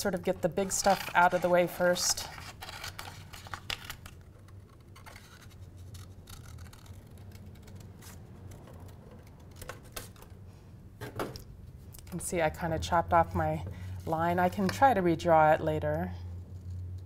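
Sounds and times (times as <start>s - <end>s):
scissors cutting paper: 0.2s - 10.2s.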